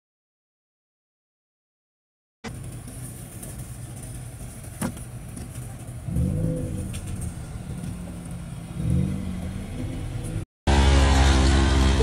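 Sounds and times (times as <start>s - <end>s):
car engine revving: 2.5s - 12.0s.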